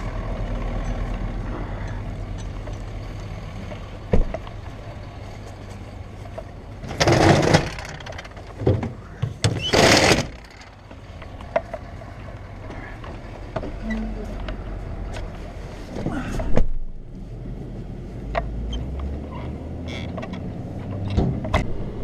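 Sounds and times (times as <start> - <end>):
truck engine idling: 0.0 - 16.0.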